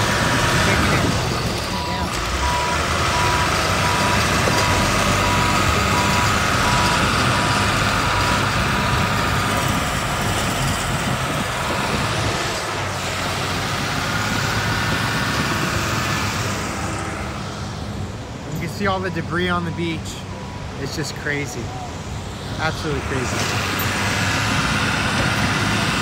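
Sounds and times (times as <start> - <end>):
heavy diesel machinery running: 0.0 - 18.5, 21.6 - 26.0
backup alarm beeping: 1.7 - 7.1.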